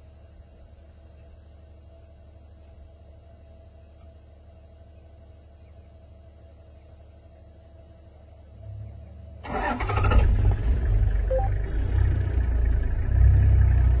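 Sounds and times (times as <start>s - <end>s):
engine low rumble: 0.0s - 14.0s
vehicle engine starting: 8.8s - 14.0s.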